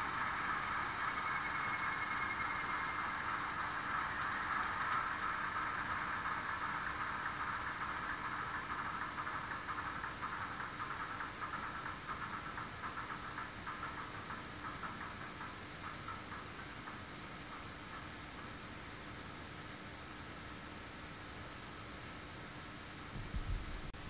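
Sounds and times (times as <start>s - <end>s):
model locomotive engine sound: 0.0s - 23.0s.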